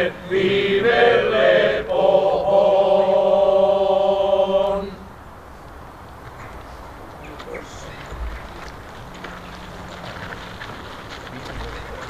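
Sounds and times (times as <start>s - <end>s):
group of voices singing: 0.0s - 5.1s.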